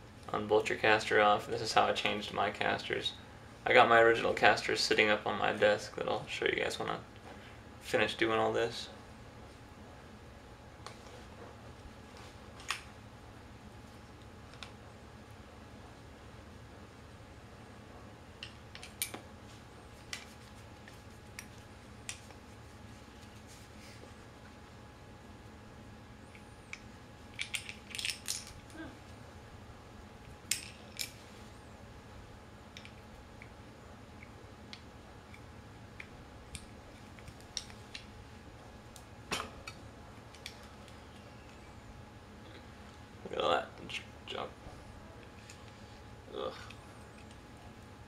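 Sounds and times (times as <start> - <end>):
light clicks and clacks of metal parts: 18.4 - 19.2, 26.3 - 28.8, 30.2 - 31.2, 32.7 - 38.1, 39.0 - 41.8.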